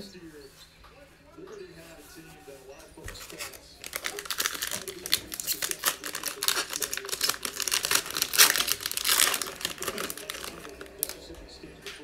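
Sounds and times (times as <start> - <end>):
foil wrapper crinkling and tearing: 3.0 - 11.4.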